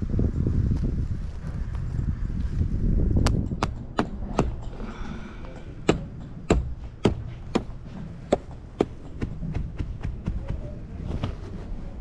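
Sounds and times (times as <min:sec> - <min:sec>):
sledgehammer driving nails: 0:03.2 - 0:05.0, 0:05.8 - 0:10.6.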